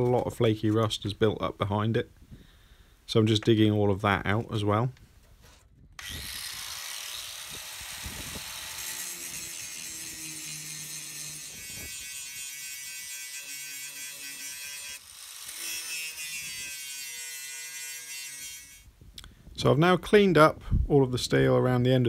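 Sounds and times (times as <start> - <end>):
angle grinder grinding steel: 6.0 - 18.9.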